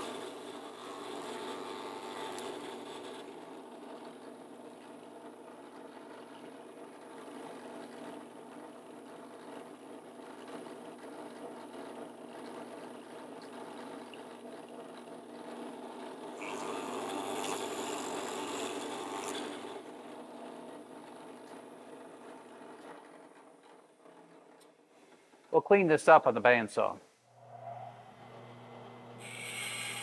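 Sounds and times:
drill bit boring into wood: 0.0s - 5.1s, 15.7s - 20.4s, 28.1s - 30.0s
drill press motor humming: 0.0s - 24.6s, 27.3s - 30.0s.

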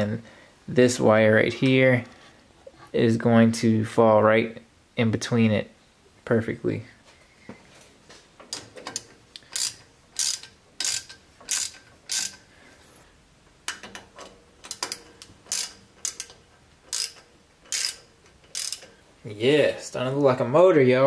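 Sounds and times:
socket ratchet clicking: 8.9s - 12.4s, 13.7s - 19.0s.

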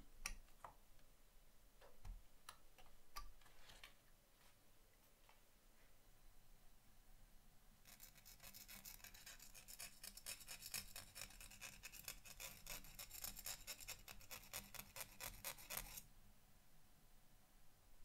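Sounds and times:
needle file rasping on metal: 7.9s - 16.0s.

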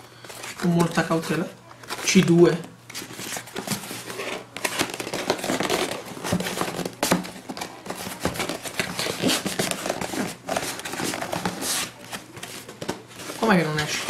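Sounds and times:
cardboard box knocking and scraping: 4.6s - 14.0s.

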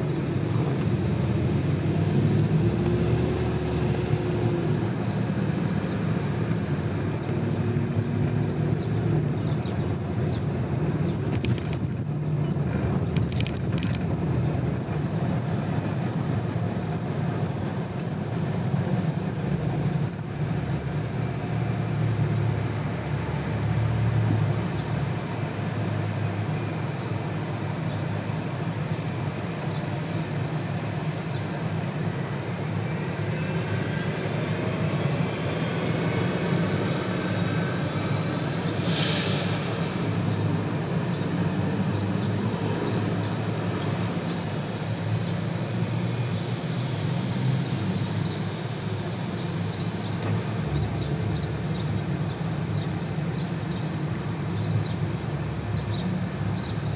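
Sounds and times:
car road noise: 0.0s - 56.9s.

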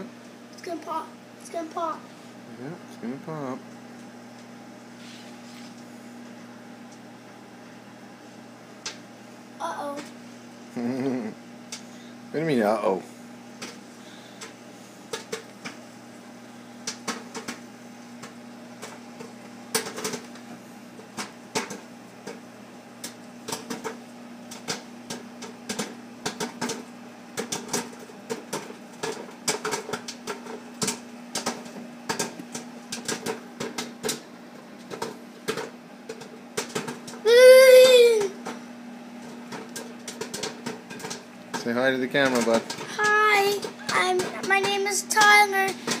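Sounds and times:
microwave oven hum: 0.0s - 46.0s
popcorn popping: 8.4s - 10.2s, 10.8s - 12.8s, 13.4s - 46.0s.

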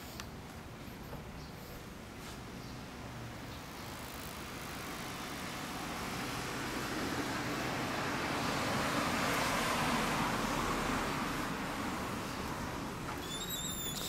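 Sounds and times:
vehicle passing: 4.9s - 13.1s.

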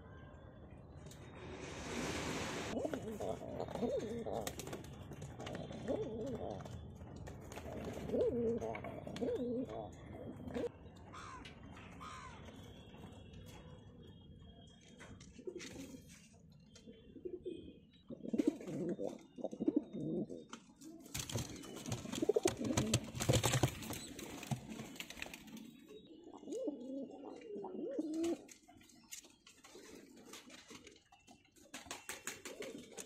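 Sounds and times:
pigeons cooing: 2.7s - 6.8s, 7.5s - 11.4s, 17.0s - 28.6s.

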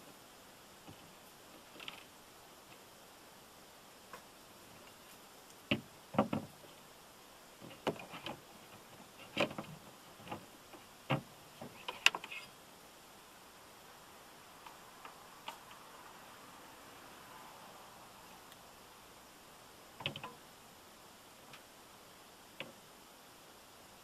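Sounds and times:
windshield wiper clicks and knocks: 5.7s - 6.5s, 7.6s - 12.2s.

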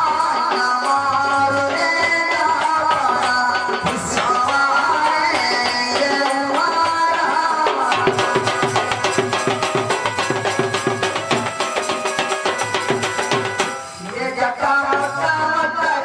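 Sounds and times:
barrel drum playing: 0.0s - 15.9s
folk melody: 8.0s - 15.3s.

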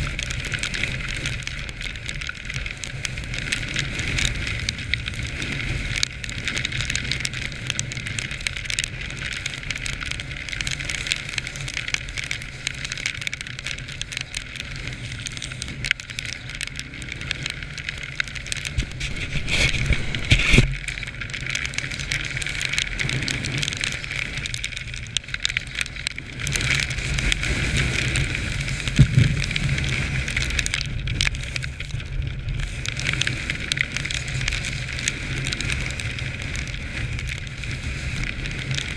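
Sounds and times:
small clicks: 0.0s - 38.9s.

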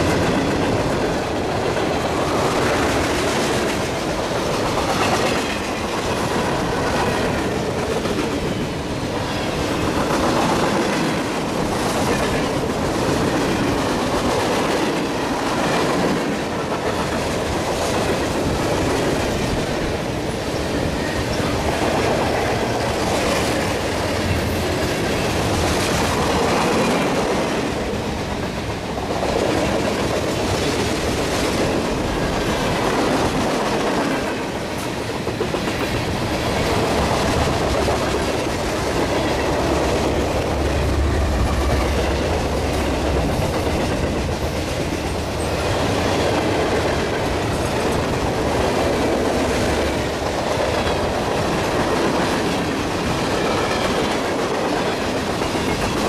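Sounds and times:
train wheels rushing over rails: 0.0s - 56.0s
diesel locomotive engine rumble: 17.2s - 56.0s.

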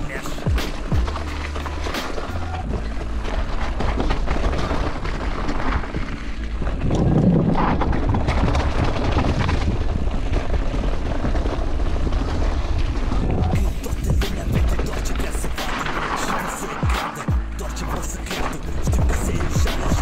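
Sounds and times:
bike tyres rumbling on gravel: 0.0s - 20.0s
tyres on wooden boardwalk: 0.0s - 20.0s
wind buffeting microphone: 0.4s - 15.6s.

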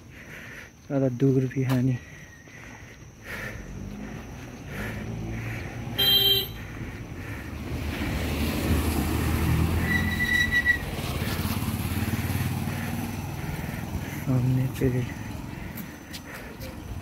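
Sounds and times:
car driving past: 3.8s - 15.9s
motorcycle driving past: 3.8s - 15.9s.

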